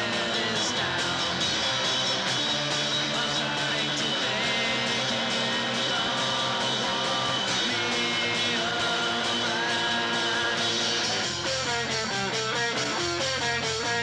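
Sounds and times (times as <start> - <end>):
bass and drums: 0.0 - 14.0
distorted electric guitar: 0.0 - 14.0.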